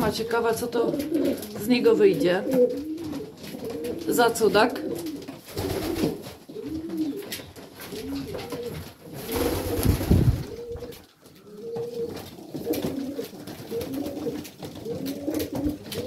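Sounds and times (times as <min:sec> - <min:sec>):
pigeons cooing: 0:00.0 - 0:16.0
rustling burst: 0:09.2 - 0:10.7.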